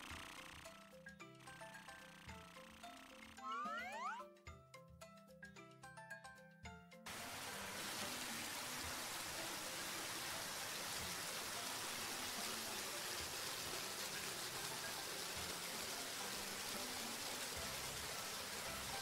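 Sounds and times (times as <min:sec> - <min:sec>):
water hose spraying: 0:07.1 - 0:19.0.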